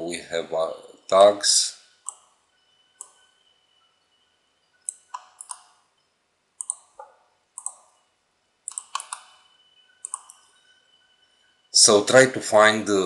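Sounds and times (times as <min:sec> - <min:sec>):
computer mouse clicks: 0:02.0 - 0:02.3, 0:04.8 - 0:05.8, 0:06.6 - 0:08.0, 0:08.6 - 0:09.4, 0:10.0 - 0:10.5.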